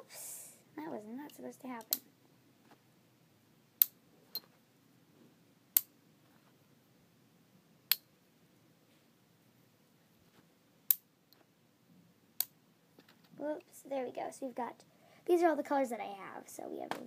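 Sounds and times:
magnetic rods clicking together: 1.8 - 2.0.

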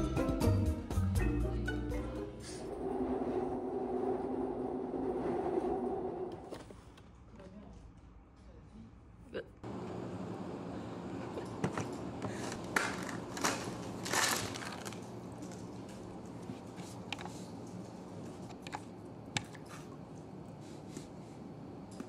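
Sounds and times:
low room hum: 1.2 - 22.0
packaging rustling: 12.5 - 15.7.

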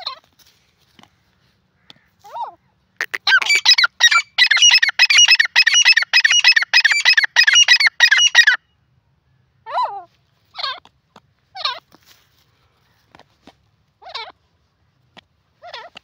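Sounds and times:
francolin calling: 3.0 - 8.6.

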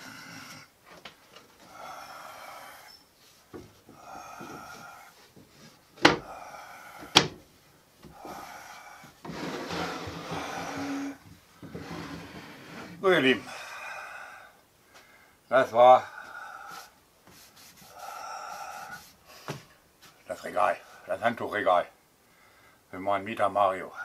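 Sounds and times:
breathing: 1.6 - 3.0, 3.9 - 7.2, 8.1 - 9.2, 12.4 - 17.0, 17.9 - 19.8, 22.2 - 22.9
rubbing sounds: 8.2 - 13.0, 16.6 - 20.3.

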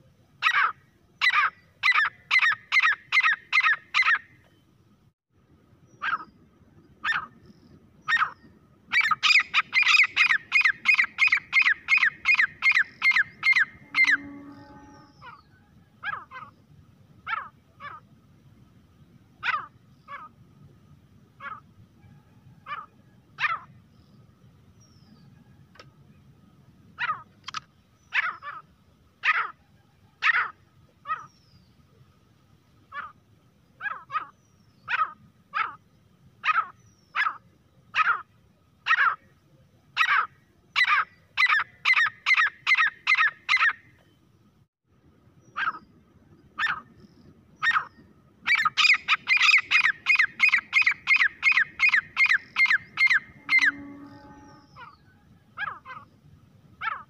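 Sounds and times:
francolin calling: 0.4 - 4.3, 7.0 - 16.6, 40.0 - 44.1, 45.4 - 56.2.

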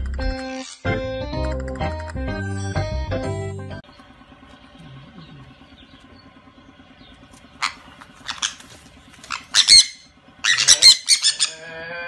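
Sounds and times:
parrots squawking: 0.4 - 0.9, 7.4 - 11.8.

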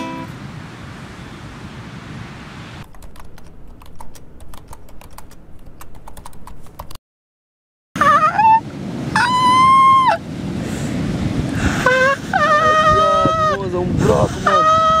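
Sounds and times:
keyboard typing clicks: 2.9 - 7.0
person yelling excitedly: 12.6 - 14.9.

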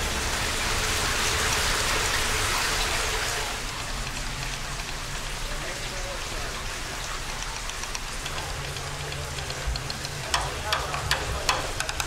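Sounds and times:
sharp clicks: 3.9 - 5.5, 7.1 - 12.0.

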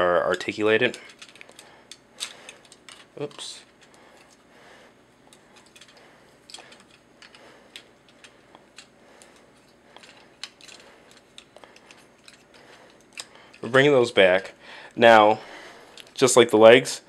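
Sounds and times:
plastic toy parts clicking: 0.9 - 3.4.

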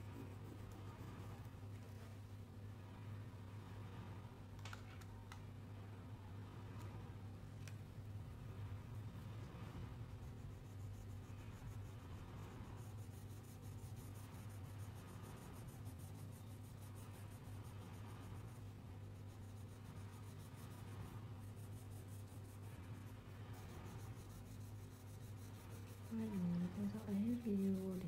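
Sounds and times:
crayon scratching on paper: 10.1 - 28.0.

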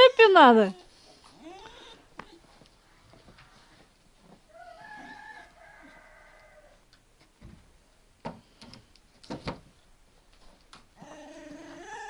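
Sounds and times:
rooster crowing: 4.5 - 6.9.

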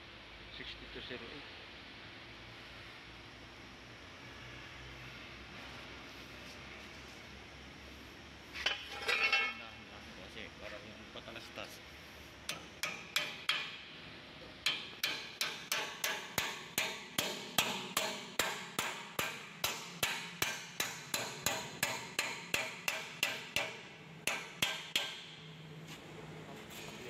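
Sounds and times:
hammer striking metal: 12.5 - 13.9, 14.6 - 25.4.

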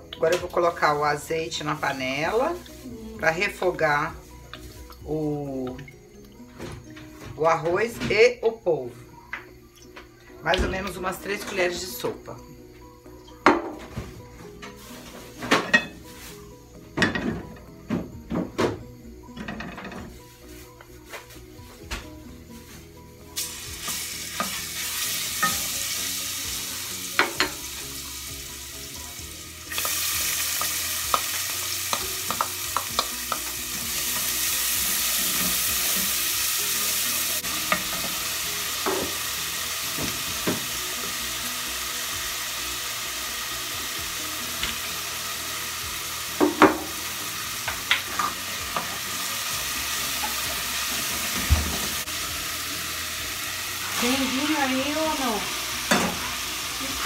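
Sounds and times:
onion sizzling in oil: 14.8 - 16.7, 22.4 - 57.0.

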